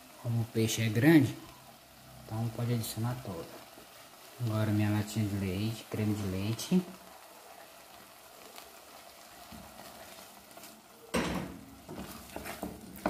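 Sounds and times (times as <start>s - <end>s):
sauce sizzling in a saucepan: 0.0s - 13.0s
wooden spoon stirring: 9.0s - 11.0s, 11.6s - 13.0s.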